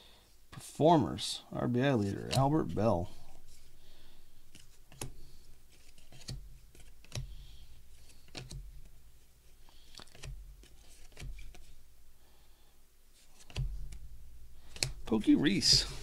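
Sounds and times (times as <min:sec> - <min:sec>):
soft rustling of cards: 0:01.4 - 0:12.3, 0:13.0 - 0:16.0
cardboard cards snapping together: 0:04.5 - 0:05.2, 0:05.8 - 0:07.4, 0:08.0 - 0:08.9, 0:09.8 - 0:11.7, 0:13.4 - 0:14.0, 0:14.6 - 0:15.0.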